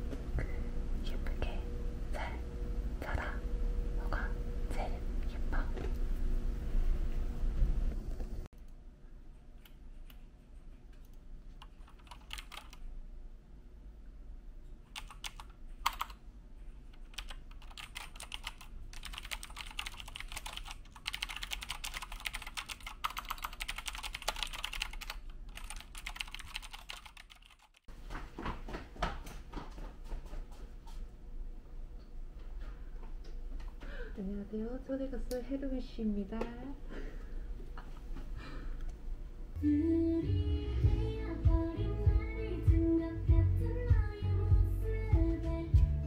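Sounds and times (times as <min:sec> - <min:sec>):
typing on a keyboard: 0:11.0 - 0:12.8, 0:14.9 - 0:16.2, 0:17.0 - 0:27.9.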